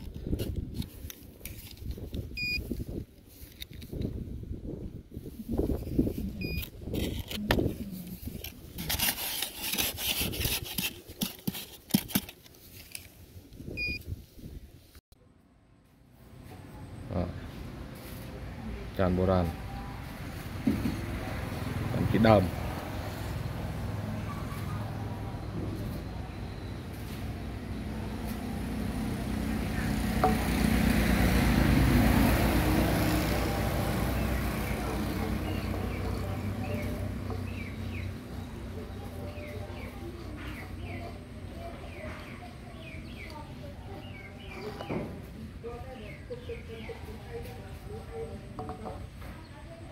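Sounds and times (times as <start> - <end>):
hands scratching in dry soil: 0.0 - 4.1, 5.2 - 13.5
vehicle engine running: 15.9 - 49.4.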